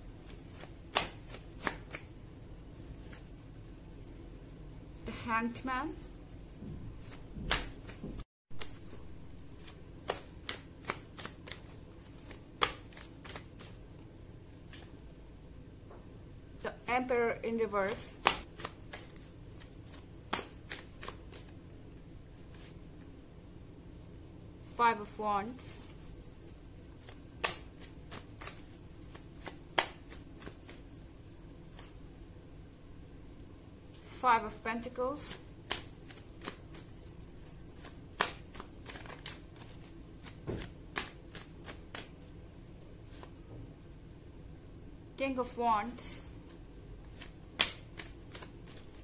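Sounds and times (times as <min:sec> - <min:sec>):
cards being shuffled: 0:00.1 - 0:02.1, 0:07.0 - 0:13.9, 0:14.6 - 0:15.0, 0:17.8 - 0:21.6, 0:22.3 - 0:23.2, 0:25.6 - 0:32.0, 0:35.2 - 0:42.3, 0:43.0 - 0:43.4, 0:46.0 - 0:49.0.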